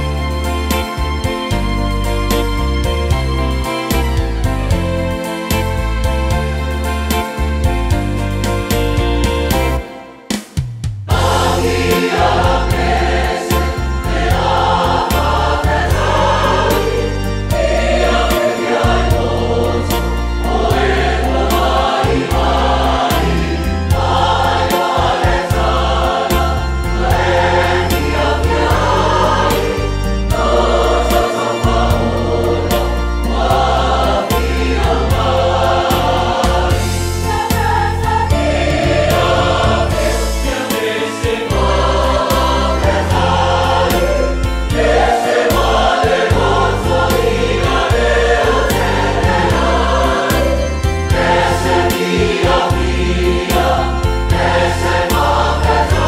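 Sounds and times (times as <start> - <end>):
deep bass line: 11.1 - 40.6, 41.5 - 56.0
choir singing a hymn: 11.1 - 56.0.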